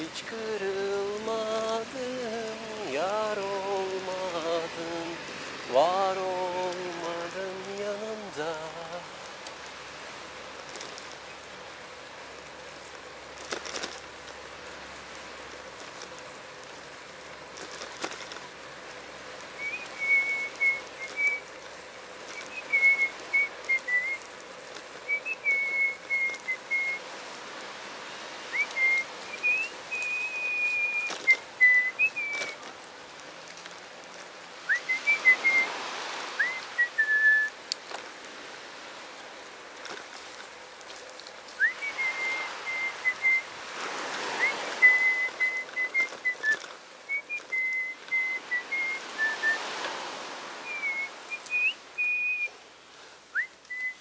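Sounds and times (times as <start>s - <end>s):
person whistling a tune: 19.6s - 21.4s, 22.4s - 24.2s, 25.1s - 27.0s, 28.6s - 32.6s, 34.7s - 35.7s, 36.4s - 37.6s, 41.6s - 43.5s, 44.4s - 49.6s, 50.7s - 52.5s, 53.3s - 54.0s.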